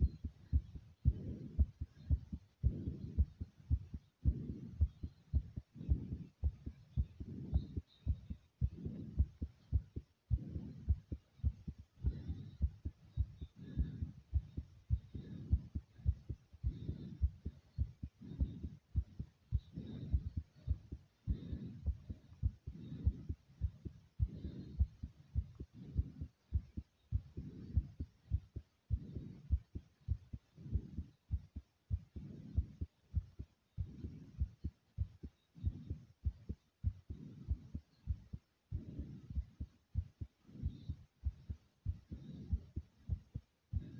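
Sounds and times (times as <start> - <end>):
heartbeat thumps: 0.0 - 43.9
heavy breathing: 0.2 - 34.6.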